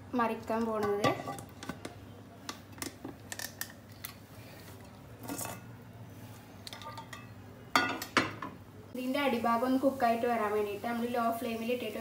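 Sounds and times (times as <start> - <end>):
metal frying pans clinking: 6.7 - 8.6.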